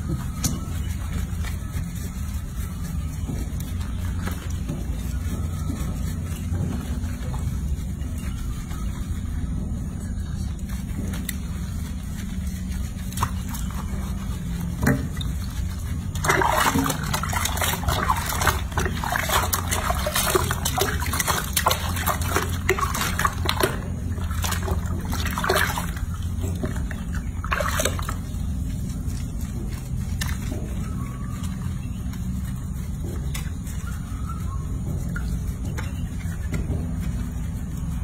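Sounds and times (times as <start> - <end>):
steady low hum: 0.0 - 38.0
hands splashing water in basin: 14.9 - 30.5.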